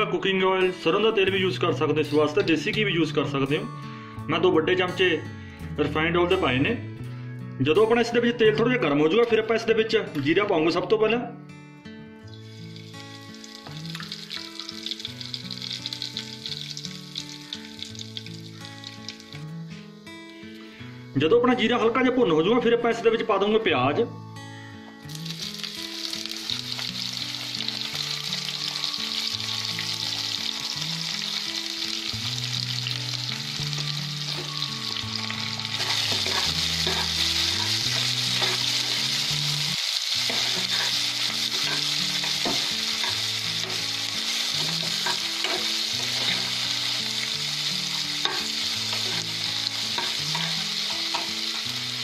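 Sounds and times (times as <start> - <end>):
onions sizzling in oil: 12.3 - 20.2, 25.1 - 52.0
metal spoon scraping pan: 35.7 - 39.0.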